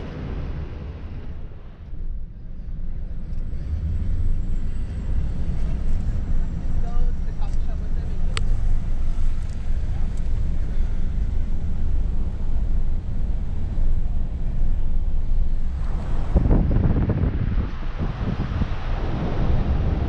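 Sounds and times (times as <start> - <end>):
car rumbling over brick pavement: 0.0 - 20.0
wind buffeting microphone: 0.0 - 20.0.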